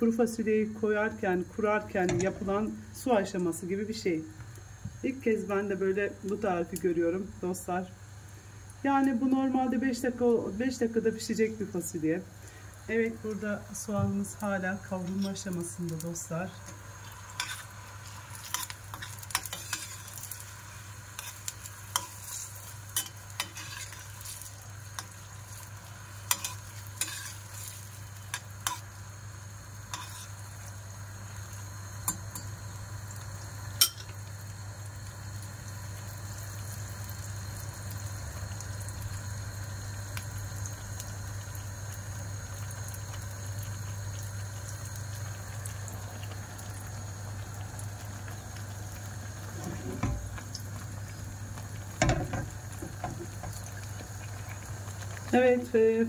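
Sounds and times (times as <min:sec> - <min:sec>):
onions sizzling in butter: 0:00.0 - 0:56.0
metal spoon clinking on pot: 0:33.8 - 0:34.1.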